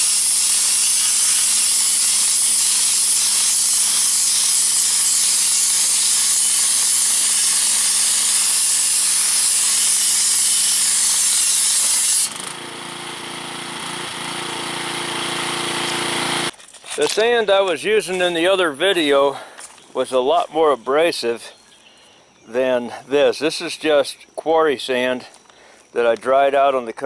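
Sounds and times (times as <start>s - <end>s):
high-pressure water and sand spraying: 0.0s - 16.5s
pressure washer engine hum: 12.3s - 16.5s.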